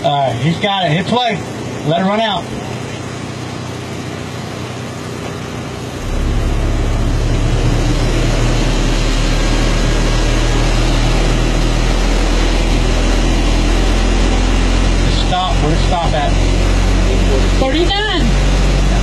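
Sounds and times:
deep subwoofer bass: 5.8s - 19.0s.

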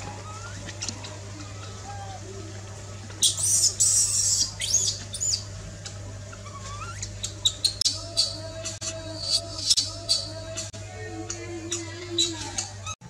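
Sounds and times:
baby monkey screaming: 0.0s - 2.4s, 3.2s - 5.5s, 6.3s - 8.4s, 9.2s - 10.4s.

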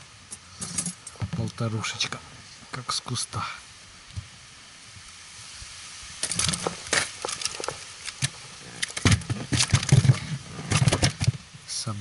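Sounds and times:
fish thrashing knocks and thumps: 6.2s - 11.5s.

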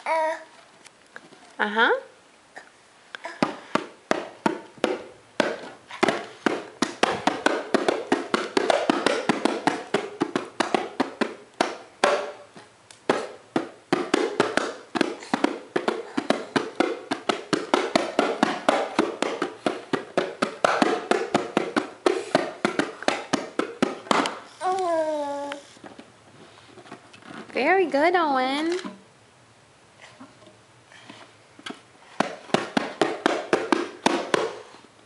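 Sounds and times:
bongo drums slapped by hand: 3.2s - 24.5s, 31.6s - 34.7s.

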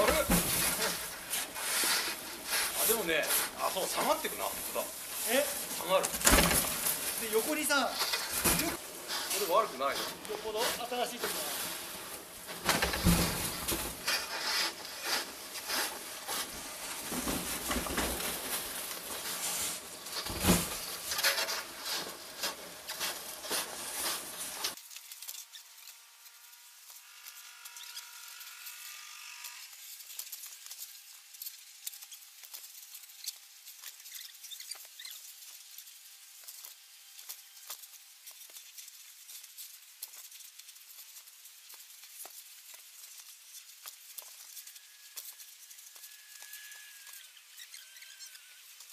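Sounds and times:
heavy thumps: 0.0s - 1.1s
snow crunching: 0.0s - 24.8s
faint thin hiss: 0.0s - 25.8s
snow pusher scraping snow: 0.0s - 28.5s.

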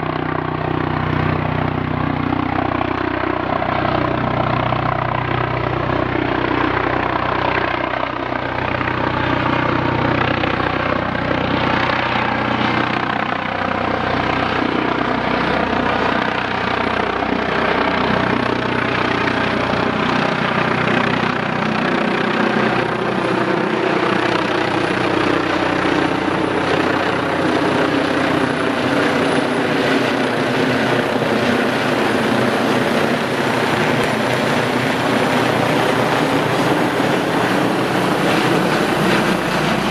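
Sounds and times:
helicopter turbines and rotor: 0.0s - 39.9s.

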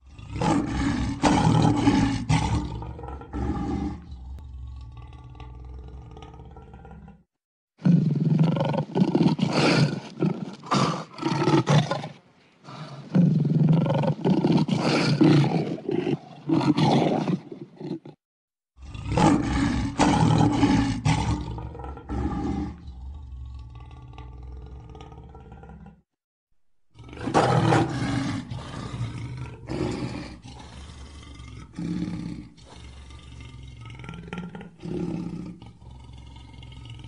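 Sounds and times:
lion roaring: 0.0s - 12.0s, 18.8s - 26.0s, 26.9s - 37.0s.

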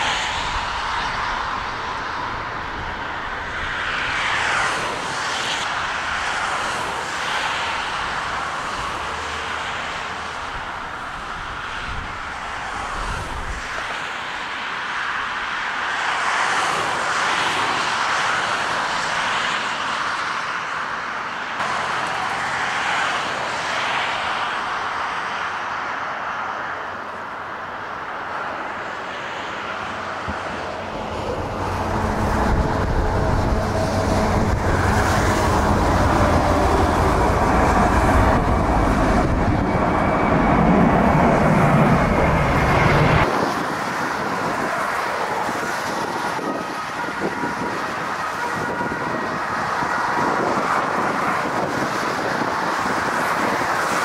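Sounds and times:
jet engine rumble and whine: 0.0s - 54.0s
turboprop plane climbing: 29.5s - 54.0s.

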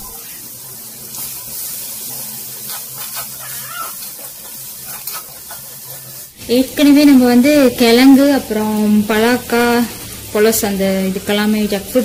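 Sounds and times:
onions sizzling in hot oil: 0.0s - 12.0s
metal spoon scraping a pan: 1.1s - 6.4s.

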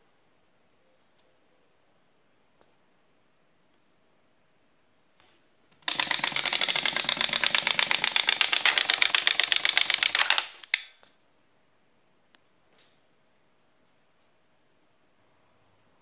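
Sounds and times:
rapid mechanical clicks: 5.7s - 10.9s.

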